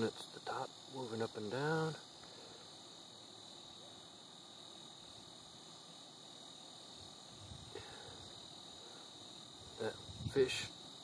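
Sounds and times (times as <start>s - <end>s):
faint high-pitched electronic whine: 0.0s - 11.0s.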